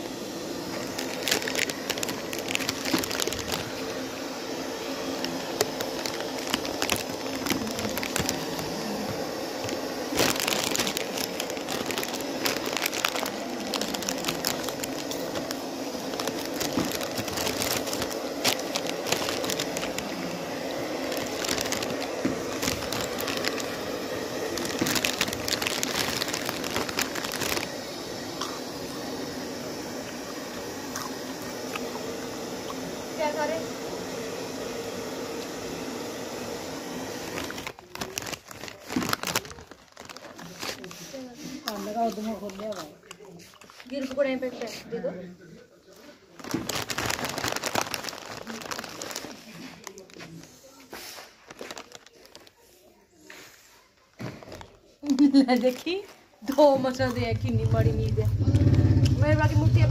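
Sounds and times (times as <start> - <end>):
hair dryer running: 0.0 - 37.9.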